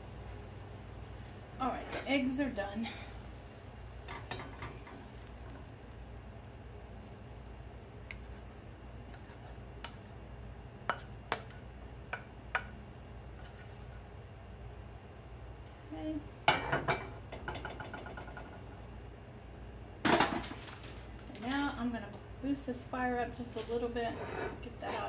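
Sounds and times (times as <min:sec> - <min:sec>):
low steady hum: 0:00.0 - 0:25.0
pan clattering on stove grate: 0:04.1 - 0:05.2, 0:20.0 - 0:20.6
utensil tapping a pan: 0:10.9 - 0:12.8.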